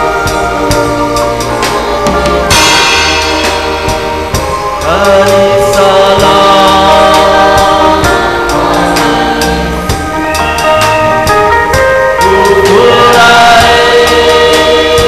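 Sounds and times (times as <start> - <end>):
accompanying instruments: 0.0 - 15.0
choir singing gospel: 0.0 - 15.0
drum beat: 0.3 - 14.2.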